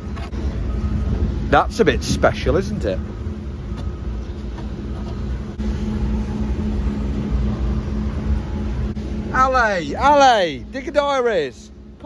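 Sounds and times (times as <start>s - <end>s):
motor humming: 2.4s - 12.0s.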